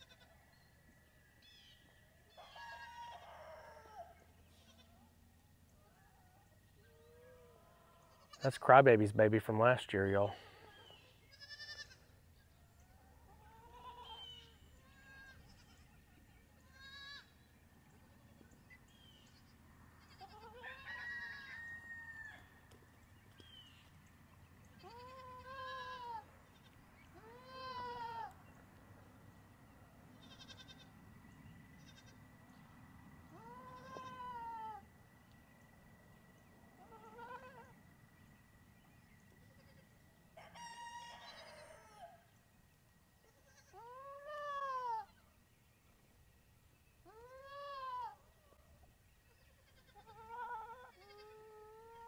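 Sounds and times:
goats bleating: 10.3 - 12.1, 36.8 - 37.7, 49.6 - 52.0.

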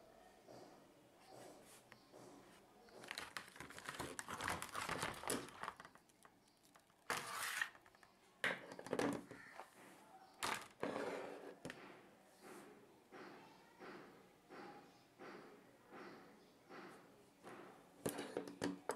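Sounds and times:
plastic packaging crackling: 3.0 - 8.1.

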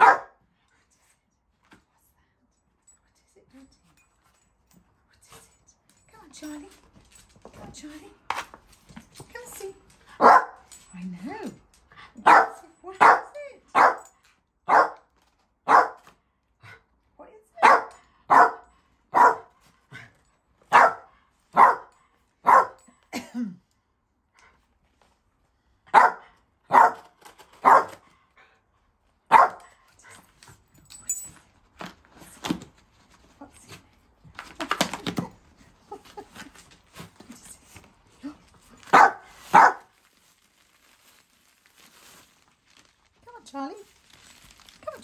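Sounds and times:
small dog barking: 0.0 - 0.4, 10.2 - 10.7, 12.2 - 14.1, 14.7 - 15.0, 15.7 - 16.1, 17.6 - 19.5, 20.7 - 22.8, 25.9 - 28.0, 29.3 - 29.7, 38.9 - 39.9
cardboard packaging rustling: 31.7 - 45.0.

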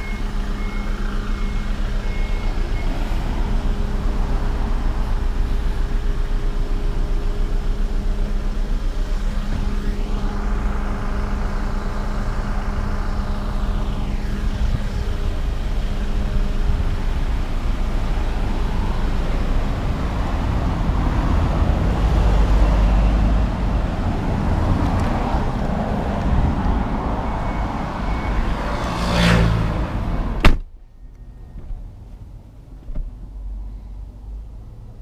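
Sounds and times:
car engine idling: 0.0 - 21.9
car door slamming: 30.4 - 30.8.

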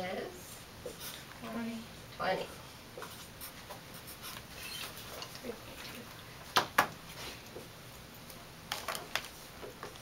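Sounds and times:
marker strokes on whiteboard: 3.0 - 5.2.

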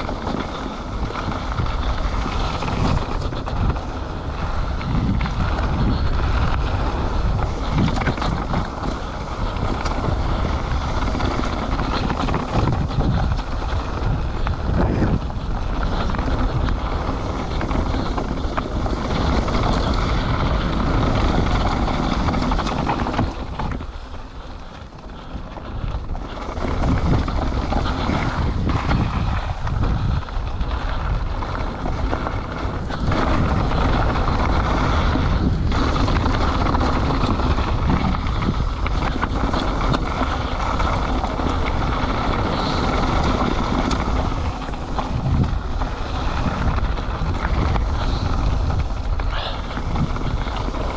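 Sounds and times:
bike tyres rolling on dirt: 0.0 - 50.9
wind buffeting microphone: 0.0 - 50.9.

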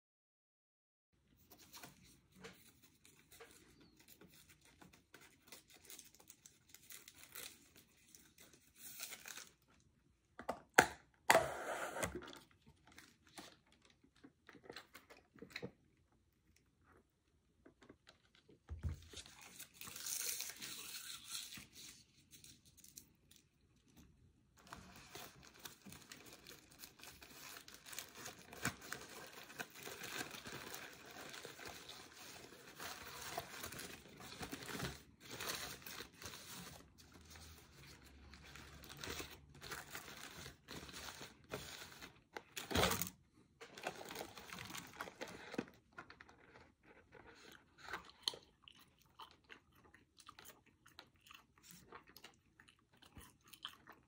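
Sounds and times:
foil wrapper crinkling: 2.8 - 9.8, 24.6 - 43.1, 43.7 - 48.0.

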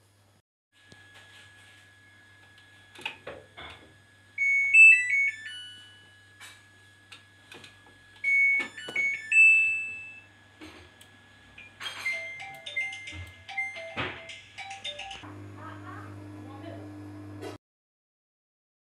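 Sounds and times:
electronic appliance tune: 4.3 - 6.9, 8.2 - 10.5, 11.5 - 17.6.

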